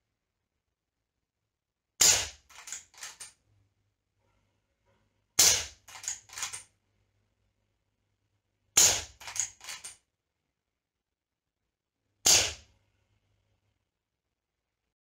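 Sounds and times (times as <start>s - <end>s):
silenced air rifle shot: 2.0s - 3.1s, 5.4s - 6.5s, 8.8s - 9.4s, 12.2s - 12.7s.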